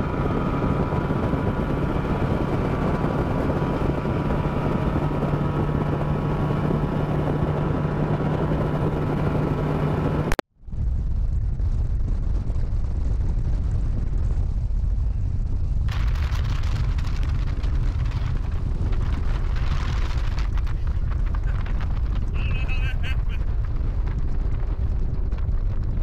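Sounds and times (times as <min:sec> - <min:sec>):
outboard engine humming: 0:00.0 - 0:10.4, 0:15.0 - 0:26.0
heavy wind buffeting microphone: 0:00.0 - 0:26.0
wind rushing: 0:00.0 - 0:26.0.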